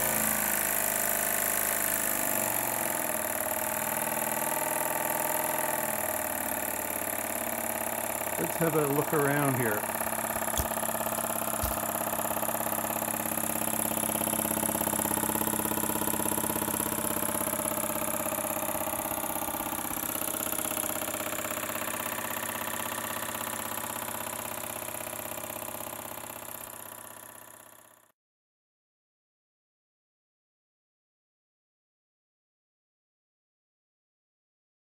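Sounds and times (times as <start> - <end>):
model steam engine running: 4.6 - 23.9
short knocks: 10.6 - 11.9.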